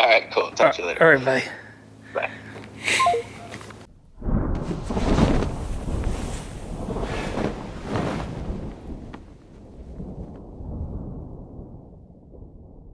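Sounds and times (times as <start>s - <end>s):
low rumble: 3.8s - 12.9s.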